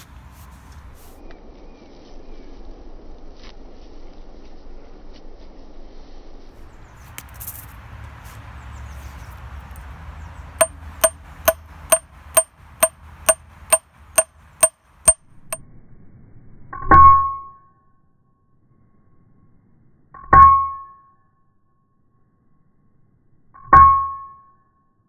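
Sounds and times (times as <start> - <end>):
ringing metallic hammer taps: 10.6 - 12.5, 13.3 - 14.3.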